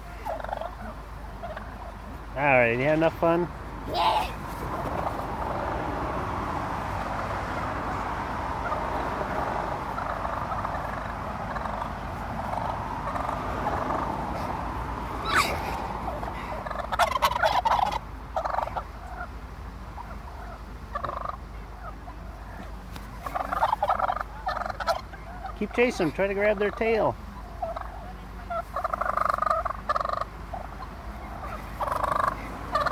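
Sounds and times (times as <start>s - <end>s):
turkeys gobbling: 0.0s - 32.9s.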